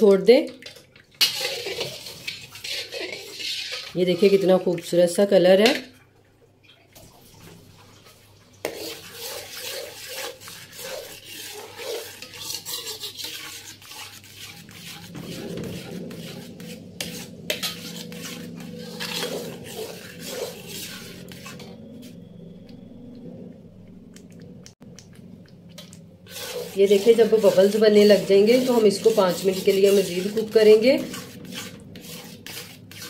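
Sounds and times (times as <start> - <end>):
metal spoon scraping a pot: 0.6 - 4.8, 8.6 - 22.4, 25.8 - 33.0
low steady hum: 14.4 - 32.9.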